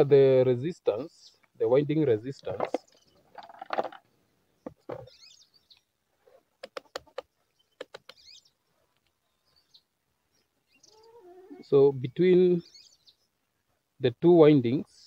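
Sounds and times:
bird chirping: 2.1 - 3.5, 4.2 - 6.0, 6.6 - 13.8.

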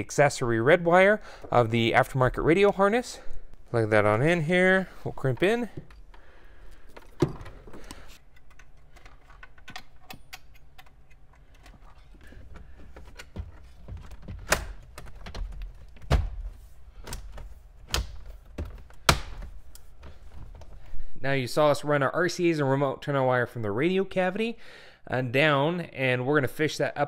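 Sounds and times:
clicks and knocks of wiring and trim: 4.8 - 20.9.

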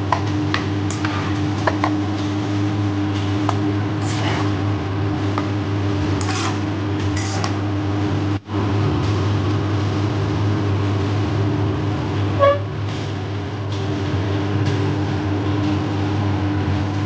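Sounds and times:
steady low hum: 0.0 - 17.0
spatula scraping a pan: 6.2 - 7.5.

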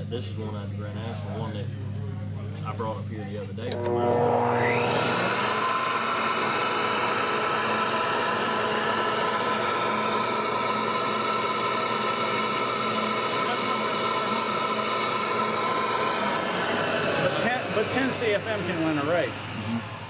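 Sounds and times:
high whine: 3.7 - 11.0
air rushing through flow bench: 3.7 - 20.0.

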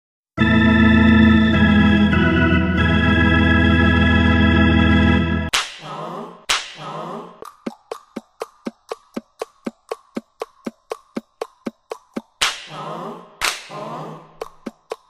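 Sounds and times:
held organ chord: 0.4 - 5.5.

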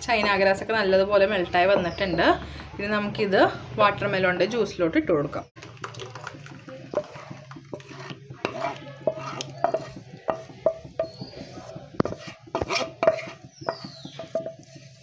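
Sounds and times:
wooden spatula scraping pan: 6.2 - 15.0.

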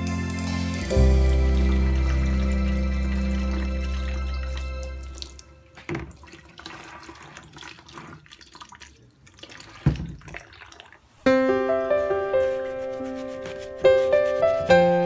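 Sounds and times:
water splashing into plastic bucket: 0.7 - 11.2.

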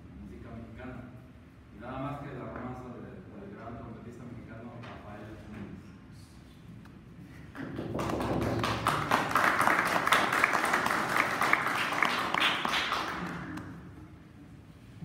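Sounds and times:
audience applauding: 7.6 - 13.8.

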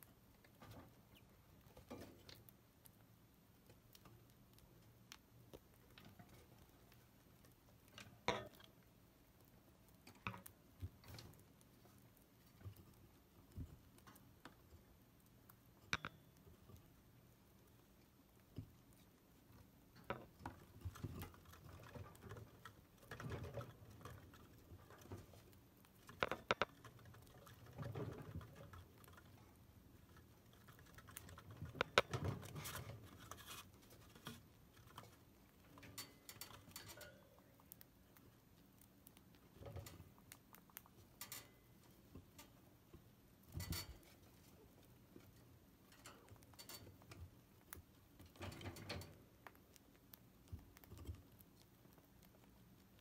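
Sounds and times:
chinchillas gnawing wood: 16.4 - 53.0.

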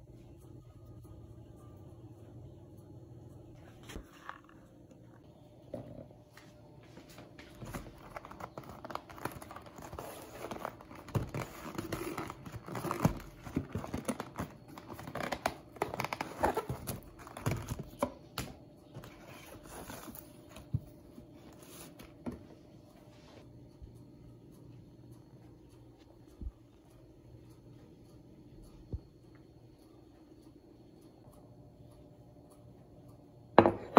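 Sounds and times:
paperboard box crinkling and scraping: 7.5 - 17.9, 19.0 - 20.8.

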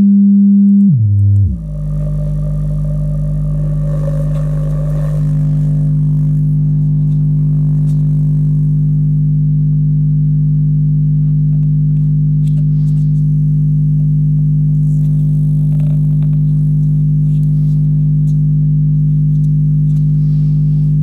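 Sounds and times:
low test tone: 0.0 - 11.1.

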